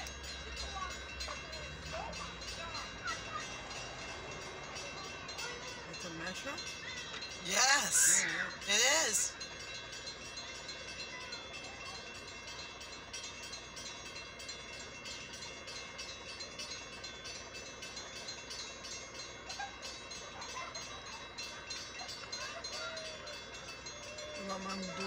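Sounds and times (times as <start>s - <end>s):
railroad crossing bell ringing: 0.0s - 25.0s.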